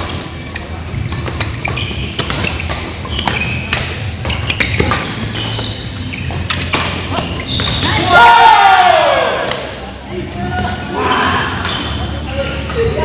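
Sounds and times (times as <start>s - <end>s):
rackets striking shuttlecock: 0.0s - 5.7s, 6.3s - 7.8s
shoes squeaking on court: 0.0s - 8.1s, 10.5s - 13.0s.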